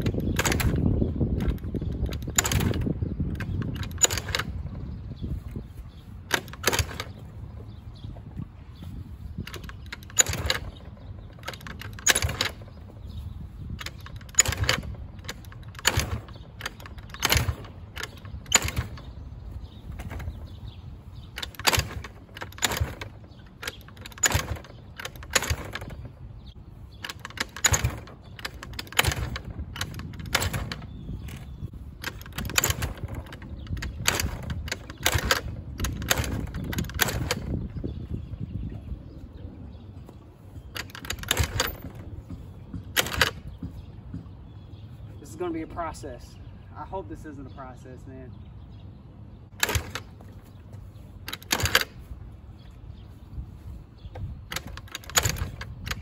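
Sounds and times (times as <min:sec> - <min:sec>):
engine cranking without starting: 0:00.0 - 0:05.0, 0:06.3 - 0:07.8, 0:09.4 - 0:38.0, 0:40.6 - 0:43.7, 0:49.5 - 0:50.6, 0:51.2 - 0:52.2, 0:54.2 - 0:56.0.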